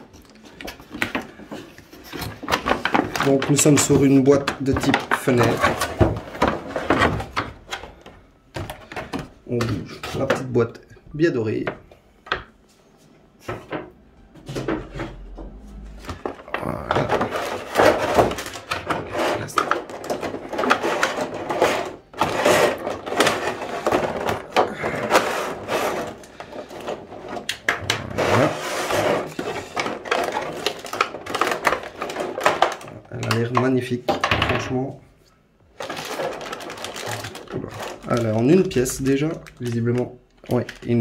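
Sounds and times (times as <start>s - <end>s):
cardboard and plastic packaging rustling: 0.0s - 41.0s.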